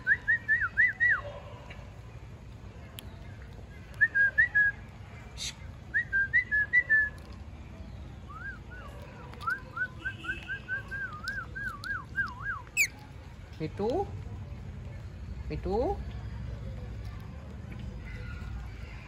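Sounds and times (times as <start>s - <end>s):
parakeets whistling: 12.6s - 13.0s.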